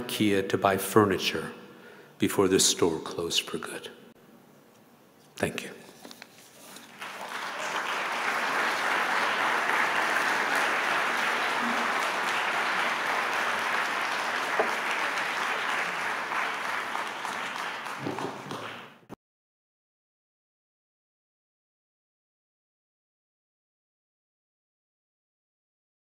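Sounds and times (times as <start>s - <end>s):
audience applauding: 6.8s - 19.2s.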